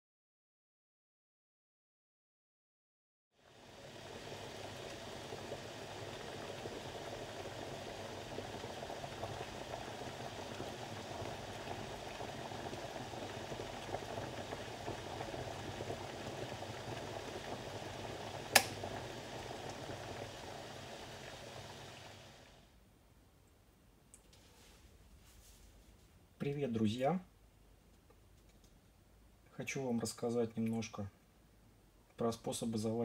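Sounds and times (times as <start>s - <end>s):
electric kettle rumbling and bubbling: 3.4s - 22.8s
kettle switch click: 18.5s - 18.8s.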